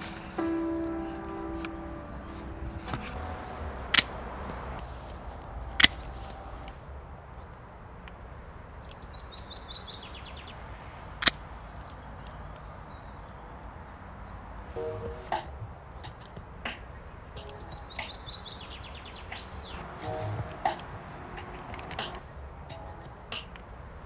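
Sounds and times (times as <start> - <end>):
outdoor ambience: 0.0 - 24.0
bird chirping: 14.7 - 24.0.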